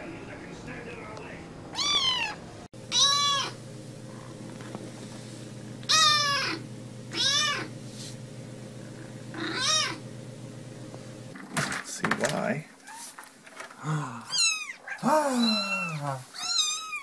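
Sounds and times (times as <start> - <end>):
steady low hum: 0.0 - 11.4
kitten meowing: 1.7 - 3.6, 5.9 - 7.7, 9.4 - 10.0, 14.3 - 17.0.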